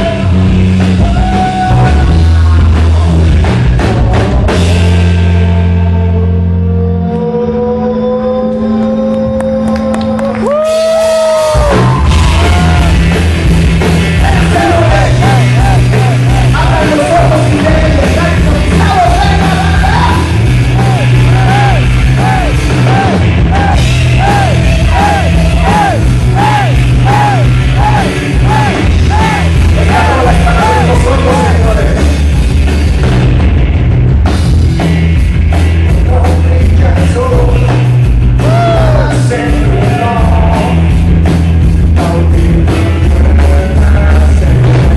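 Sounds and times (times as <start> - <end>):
electric guitar: 0.0 - 44.9
live rock band playing: 0.0 - 44.9
man singing through a pa: 38.4 - 40.9, 42.0 - 44.6.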